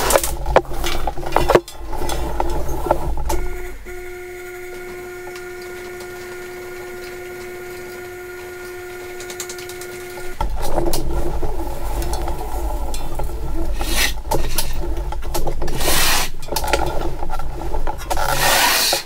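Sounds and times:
knocks and rustling: 0.0s - 3.9s, 4.6s - 19.0s
electric hoist motor whine: 0.0s - 13.9s.

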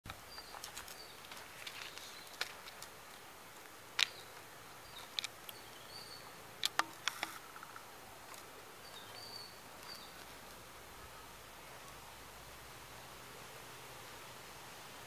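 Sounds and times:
bird chirps: 4.1s - 6.4s, 8.8s - 10.2s.

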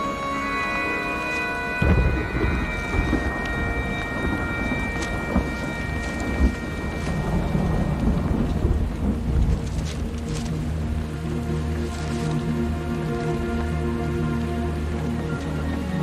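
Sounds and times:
heavy rain falling: 0.0s - 16.0s
rolling thunder: 1.8s - 10.4s.

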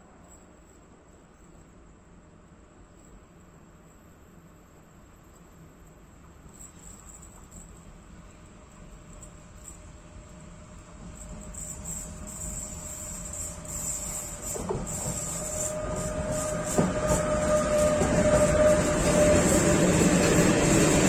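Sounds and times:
freight train passing: 10.1s - 21.0s
locomotive whine: 11.0s - 21.0s.

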